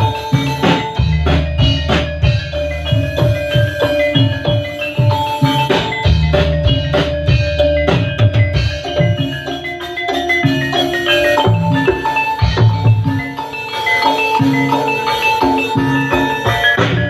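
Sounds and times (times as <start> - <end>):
low drum beats: 0.0 - 9.7
ringing metallophone notes: 0.0 - 17.0.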